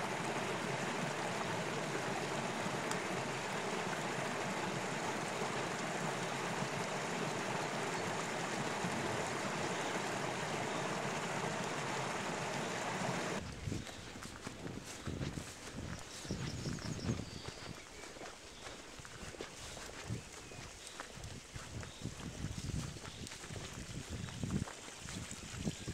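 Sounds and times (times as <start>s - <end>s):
brook babbling: 0.0s - 16.3s.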